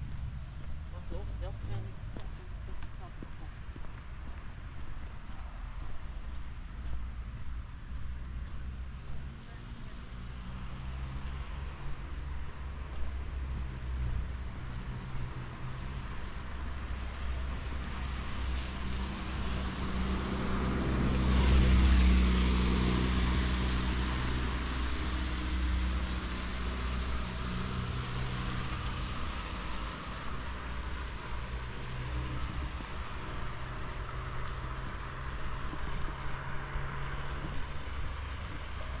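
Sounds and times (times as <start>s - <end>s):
low engine hum: 0.0s - 39.0s
vehicle passing: 17.9s - 39.0s.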